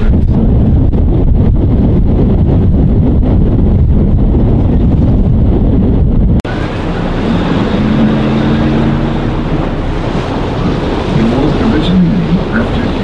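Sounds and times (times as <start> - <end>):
boat engine: 0.0 - 13.0
steady low hum: 0.0 - 13.0
wind buffeting microphone: 0.0 - 13.0
water washing: 6.4 - 13.0.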